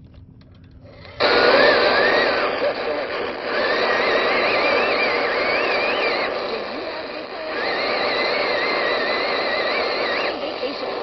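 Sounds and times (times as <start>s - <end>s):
radio static hiss: 1.2s - 11.0s
wavering high whistle: 3.6s - 6.3s, 7.6s - 10.7s.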